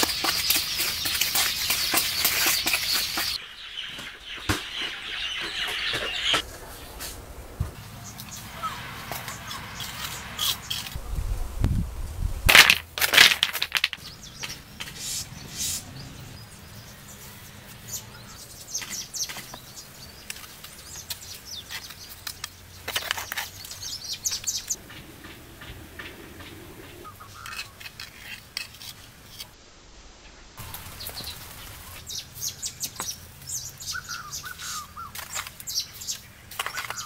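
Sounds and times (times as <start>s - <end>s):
trowel scraping stones and mortar: 0.0s - 3.4s, 9.0s - 11.0s, 12.4s - 15.8s, 18.7s - 25.7s, 27.1s - 29.6s, 34.6s - 37.0s
birds chirping: 0.0s - 12.4s, 13.5s - 28.3s, 30.6s - 37.0s.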